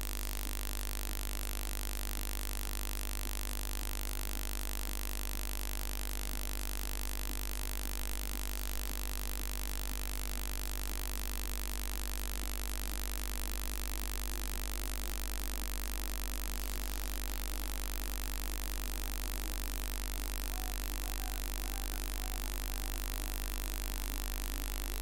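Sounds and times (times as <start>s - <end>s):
constant hiss: 5.8s - 25.0s.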